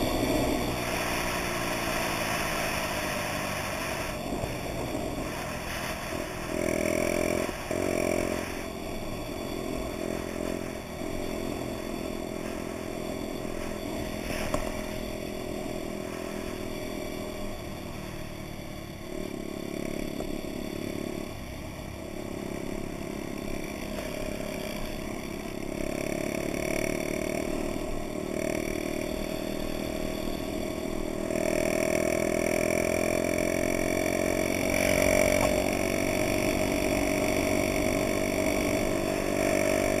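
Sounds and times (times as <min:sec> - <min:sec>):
moped engine running: 0:00.0 - 0:40.0.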